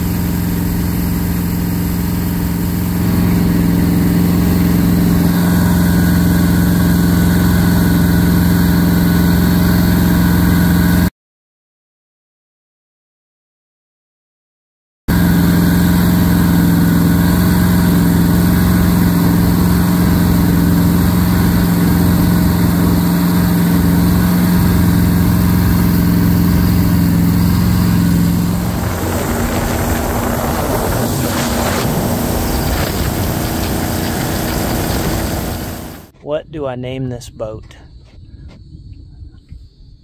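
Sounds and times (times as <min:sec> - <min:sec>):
boat engine drone: 0:00.0 - 0:11.1, 0:15.1 - 0:36.3
rush of water and wind: 0:17.0 - 0:36.1.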